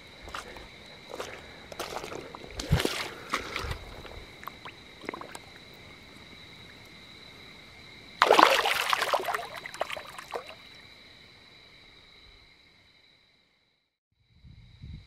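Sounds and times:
fish splashing in water: 0.3s - 6.0s, 8.2s - 10.7s.

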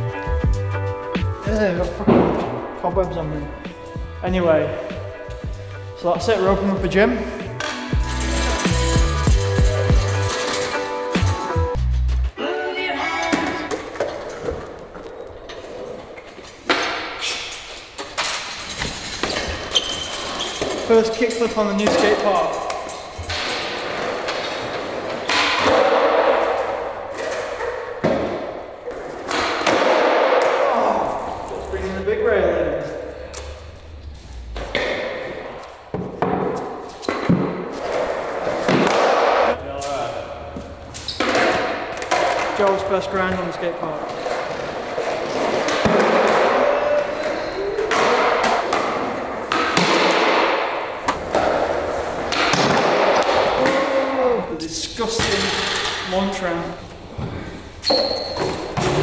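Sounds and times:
skateboard impacts: 23.2s - 31.6s, 34.6s - 39.6s, 41.1s - 54.0s
skateboard wheels rolling on concrete: 40.5s - 53.7s.

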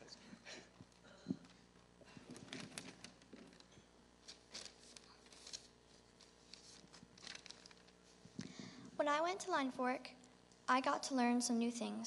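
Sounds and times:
faint steady hum: 0.0s - 12.0s
paper sheets rustling: 2.4s - 8.2s.

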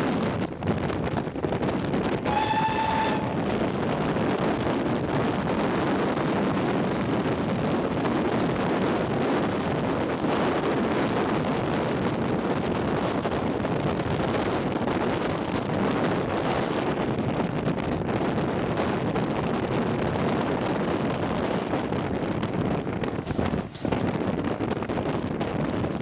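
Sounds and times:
train carriage rumbling on rails: 0.0s - 26.0s
steam locomotive whistle: 2.2s - 3.6s.

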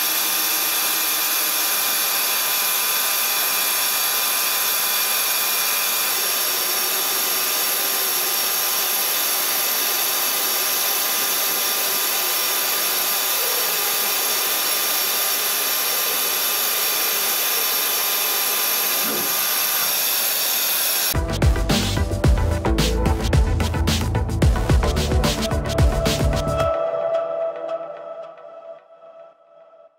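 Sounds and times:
friction welding machine hiss: 0.0s - 21.2s
high steady whines: 0.0s - 27.6s.

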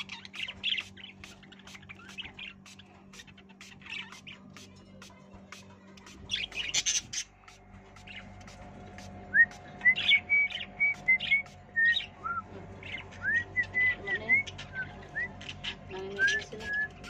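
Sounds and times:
budgerigars chirping: 0.0s - 4.4s, 6.2s - 8.2s, 12.8s - 17.0s.

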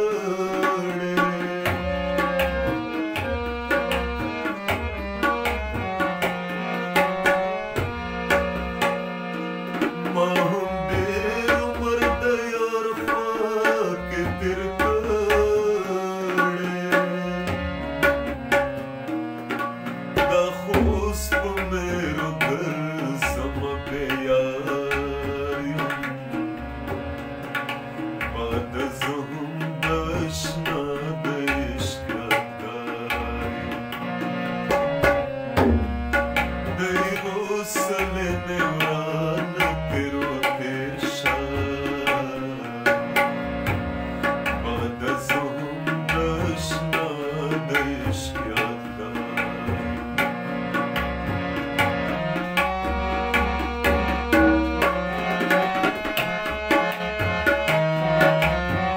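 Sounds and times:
man singing: 0.0s - 5.4s, 10.0s - 18.3s, 20.2s - 26.5s, 28.2s - 34.8s, 36.6s - 43.4s, 44.2s - 50.4s
harmonium chords: 0.0s - 58.9s
tabla playing fast rhythm: 0.0s - 58.9s.

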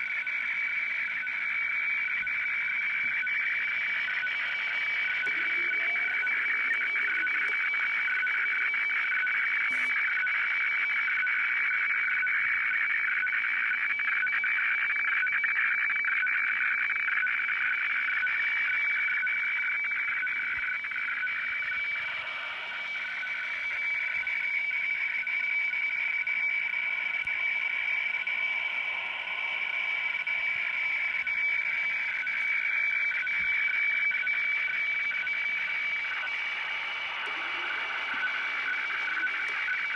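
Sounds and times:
radiofax high whistle: 0.0s - 39.9s
rasping warbling tones: 4.1s - 10.0s.

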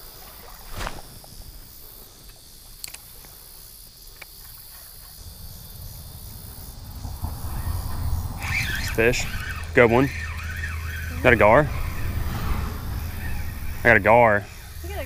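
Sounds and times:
insects chorus: 0.0s - 15.0s
low rumble: 5.2s - 15.0s.

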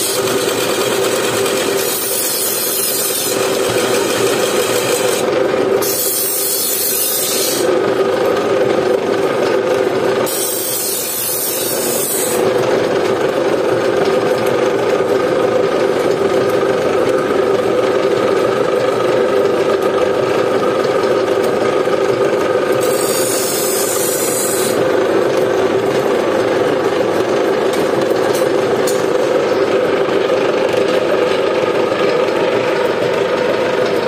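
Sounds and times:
sickle blade scraping: 1.7s - 5.2s, 5.8s - 7.7s, 10.3s - 12.4s, 22.8s - 24.8s.

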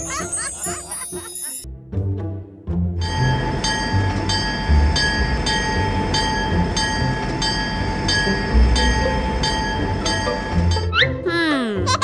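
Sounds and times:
train hum and whine: 3.1s - 10.8s.

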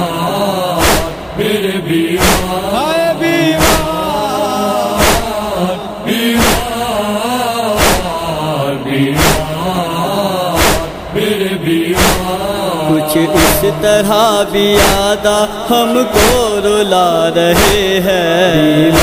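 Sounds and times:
low vocal drone: 0.0s - 19.0s
wordless chanted vocal melody: 0.0s - 19.0s
chest-beating strikes: 2.2s - 5.5s.

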